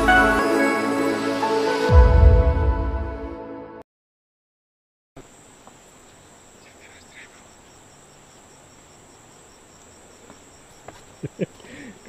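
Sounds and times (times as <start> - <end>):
insects trilling: 5.2 - 12.0.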